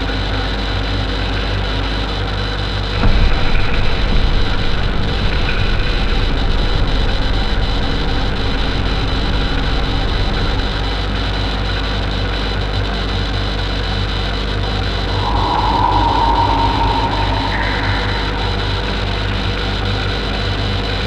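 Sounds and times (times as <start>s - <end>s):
low droning rumble: 2.9s - 12.0s, 14.6s - 20.4s.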